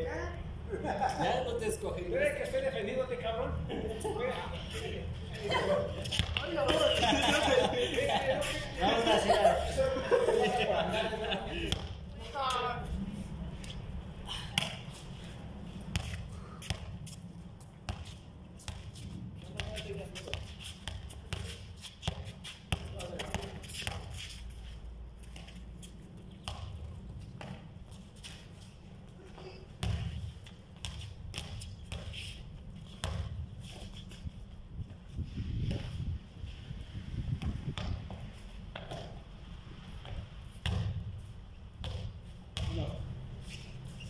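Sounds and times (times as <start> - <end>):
basketball bouncing on concrete: 6.0 - 6.9, 15.9 - 17.0, 17.9 - 24.1, 26.4 - 27.7, 29.8 - 32.2, 32.8 - 33.4, 37.4 - 39.2, 40.0 - 41.1, 41.8 - 43.0
basketball thudding on concrete: 40.0 - 41.0, 41.8 - 42.9.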